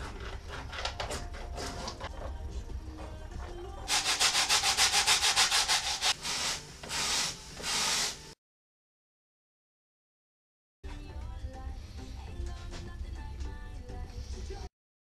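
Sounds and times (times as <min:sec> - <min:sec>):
scraper scraping wooden frames: 0:00.0 - 0:02.1, 0:03.9 - 0:08.2.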